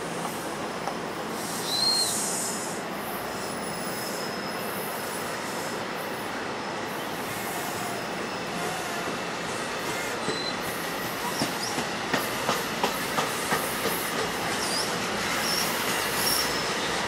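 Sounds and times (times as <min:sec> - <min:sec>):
train wheels rumbling on rail: 0:00.0 - 0:17.0
high wheel squeal: 0:03.3 - 0:04.8, 0:10.1 - 0:10.6, 0:14.6 - 0:17.0.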